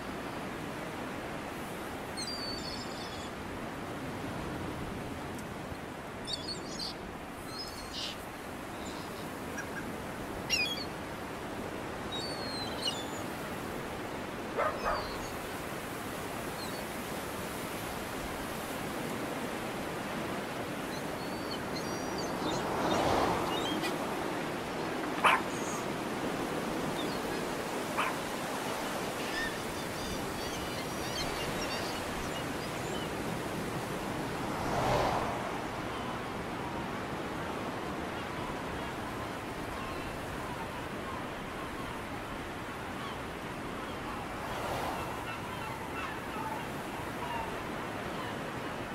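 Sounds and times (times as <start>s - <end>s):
surf washing: 0.0s - 48.9s
animal calls: 25.1s - 25.8s.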